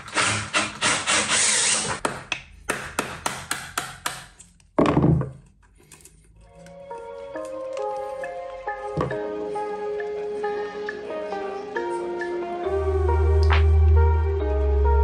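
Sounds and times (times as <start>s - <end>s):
chisel tapping: 2.0s - 4.4s.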